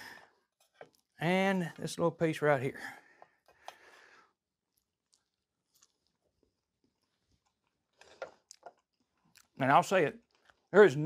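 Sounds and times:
faint chewing: 4.6s - 9.6s.

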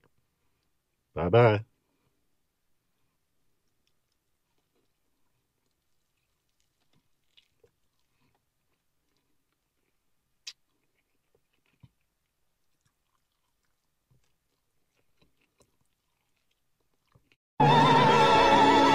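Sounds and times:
chewing crispy fried chicken: 3.0s - 17.4s.

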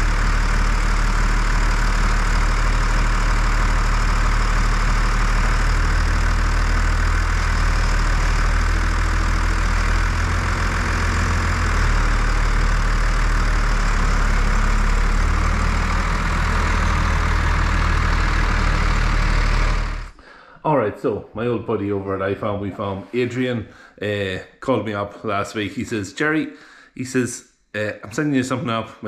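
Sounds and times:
tractor diesel engine idling: 0.0s - 20.2s.

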